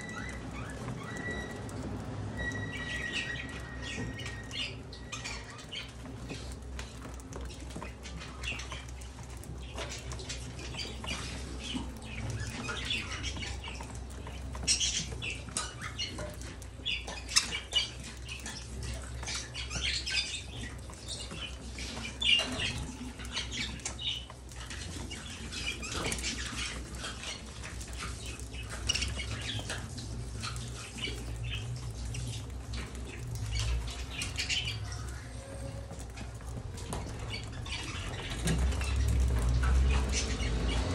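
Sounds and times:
beaks pecking at food: 0.0s - 40.9s
budgerigars chirping: 0.0s - 40.9s.

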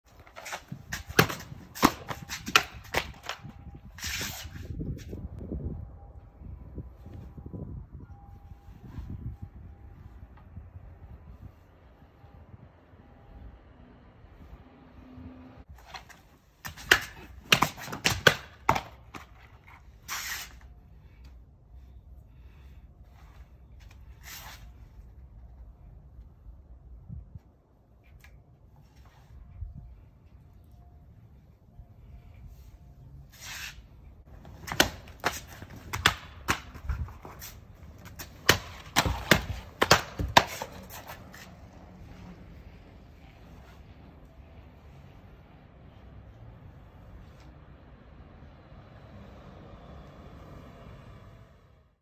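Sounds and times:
sword swishing and slicing: 0.2s - 5.2s, 19.8s - 20.7s, 33.2s - 41.6s
mat pieces dropping on concrete: 38.0s - 41.2s.

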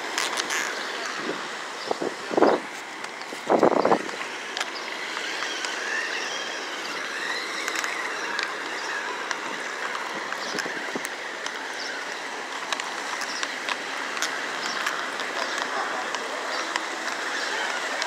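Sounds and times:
electric toy car motor whining: 3.6s - 18.0s.

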